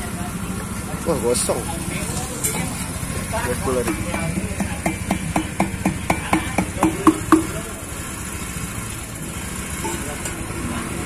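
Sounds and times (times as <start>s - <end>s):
sharp ringing knocks: 3.8s - 7.6s.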